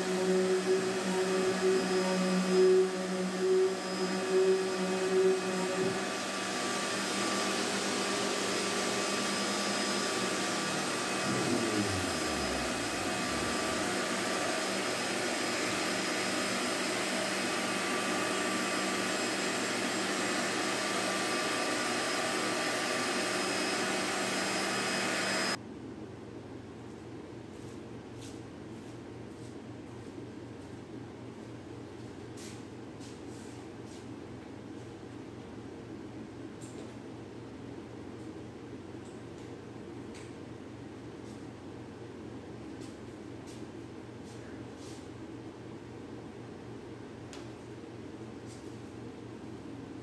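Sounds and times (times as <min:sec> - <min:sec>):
power tool motor whine: 0:00.0 - 0:25.6
shop vacuum running: 0:00.0 - 0:25.6.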